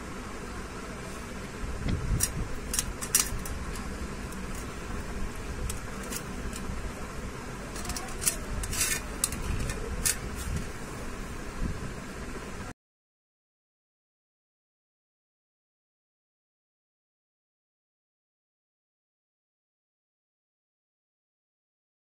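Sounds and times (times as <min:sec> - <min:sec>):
steady background hum: 0:00.0 - 0:12.7
knife scraping a steel plate: 0:05.6 - 0:06.7, 0:07.7 - 0:10.6.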